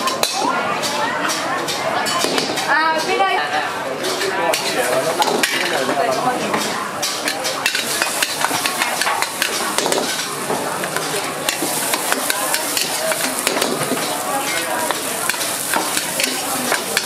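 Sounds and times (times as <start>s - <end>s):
food sizzling in oil: 7.1s - 17.0s
metal spatula scraping wok: 7.1s - 17.0s.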